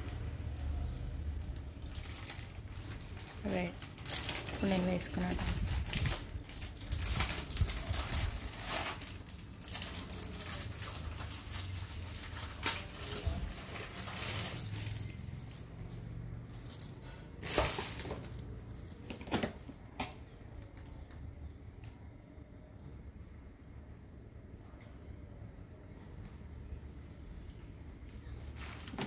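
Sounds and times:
glass bangles clinking: 0.0 - 19.2.

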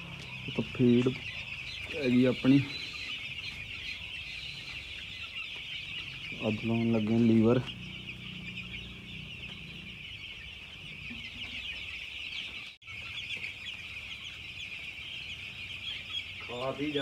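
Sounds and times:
chicks peeping: 0.0 - 17.0.

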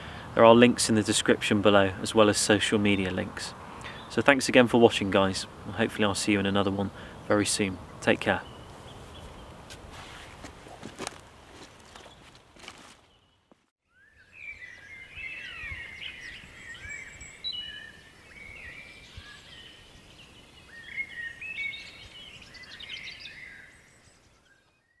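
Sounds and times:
birds chirping and whistling: 3.8 - 4.2, 13.0 - 25.0.

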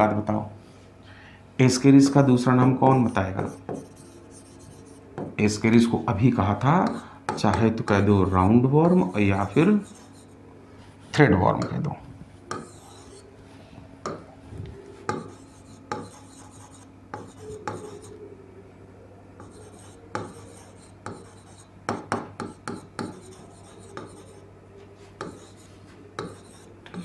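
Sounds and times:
marker scraping on whiteboard: 2.7 - 5.3, 7.9 - 11.2, 12.4 - 13.3, 15.0 - 18.2, 19.4 - 24.4, 25.0 - 27.0.

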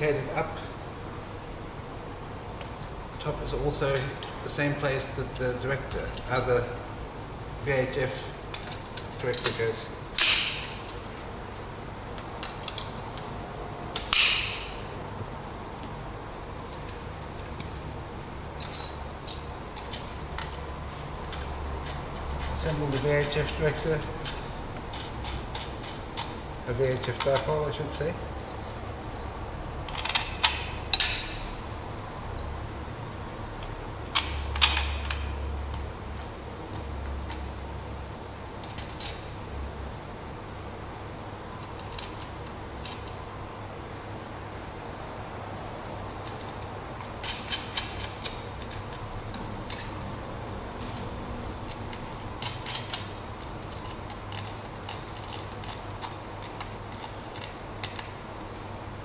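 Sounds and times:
low steady hum: 0.0 - 59.0
metal parts clicking and tapping: 8.5 - 11.0, 12.1 - 14.9, 18.5 - 28.8, 29.8 - 31.6, 33.6 - 37.5, 38.6 - 39.3, 41.6 - 43.2, 45.8 - 58.7.

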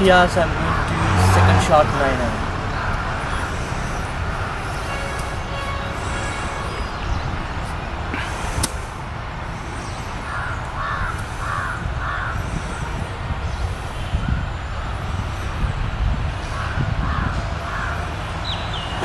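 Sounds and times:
steady low rumble: 0.0 - 18.9
crow cawing: 0.6 - 7.2, 9.8 - 14.2, 16.4 - 18.2
sharp click: 8.6 - 8.8.

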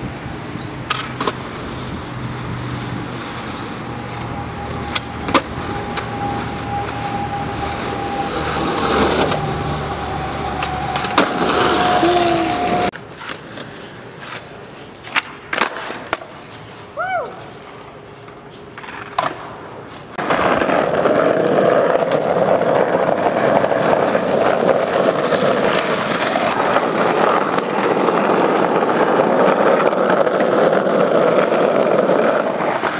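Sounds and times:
skateboard wheels rolling on pavement: 0.0 - 32.9
skateboard clacks: 12.9 - 32.9.

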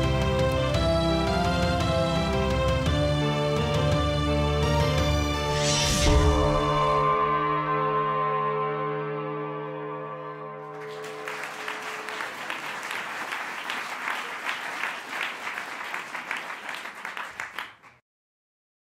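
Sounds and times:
audience applauding: 10.7 - 18.0.

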